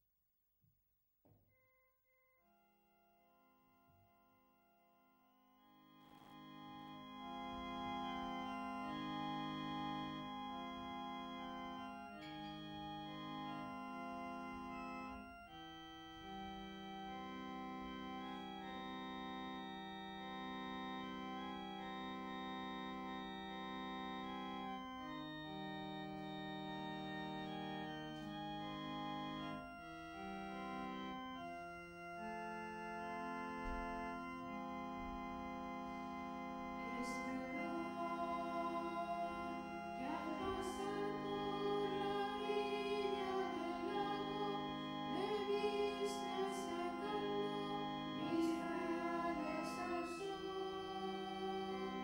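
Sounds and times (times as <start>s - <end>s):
organ playing sustained chords: 2.1s - 52.0s
person singing: 36.9s - 52.0s.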